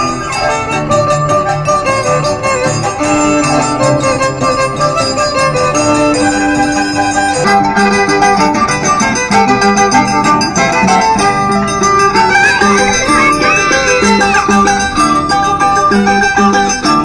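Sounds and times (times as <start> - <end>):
violin melody: 0.0 - 17.0
harp playing: 6.3 - 17.0.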